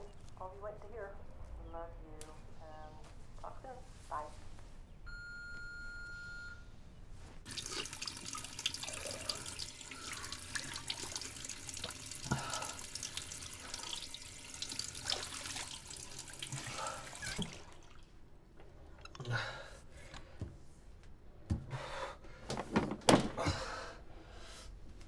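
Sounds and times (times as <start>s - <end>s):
faucet running into sink: 7.5s - 18.0s.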